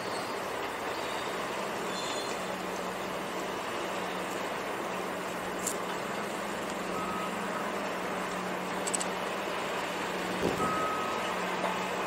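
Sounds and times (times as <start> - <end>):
construction machinery engine hum: 0.0 - 12.0
short high warning beep: 10.6 - 11.4.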